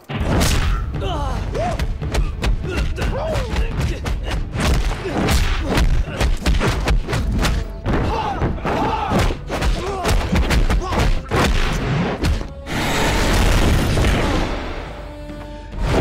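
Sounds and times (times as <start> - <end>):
background music: 0.0 - 16.0
fighters shouting and grunting: 0.8 - 11.7.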